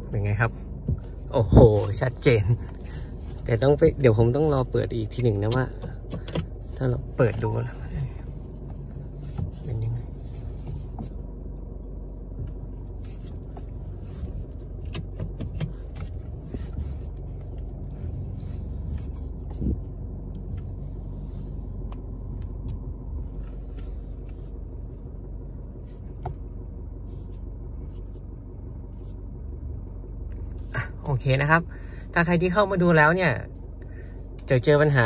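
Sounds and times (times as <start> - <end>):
engine and road rumble: 0.0 - 35.0
light clicks and knocks: 5.0 - 11.2, 14.4 - 17.9.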